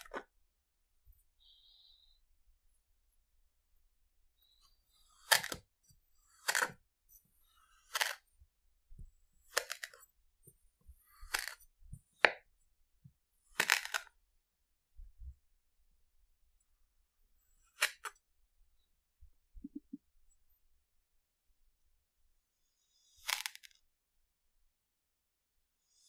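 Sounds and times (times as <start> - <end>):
toy knife slicing sand: 5.1 - 5.6, 9.5 - 10.0, 23.0 - 23.8.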